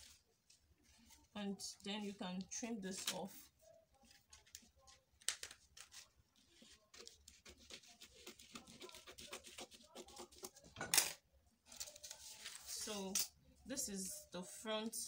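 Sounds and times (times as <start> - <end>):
paper rustling: 0.0 - 1.3, 2.0 - 10.5, 11.7 - 13.2
scissors snipping paper: 4.1 - 10.6.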